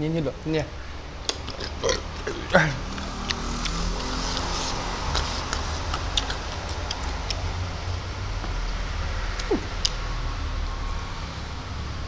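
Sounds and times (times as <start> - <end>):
chewing food: 1.2 - 10.0.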